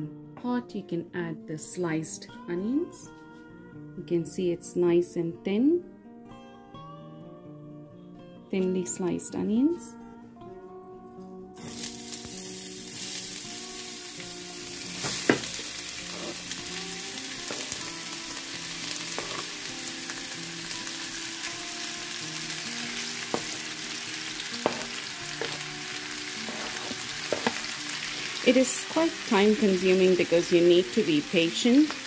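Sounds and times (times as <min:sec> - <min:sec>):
onions sizzling in oil: 0:11.6 - 0:32.0.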